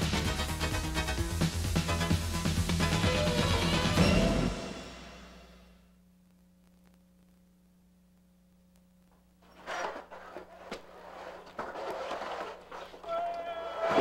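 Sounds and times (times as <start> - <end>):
faint steady hum: 5.2 - 11.9
rustling and shuffling: 9.1 - 13.4.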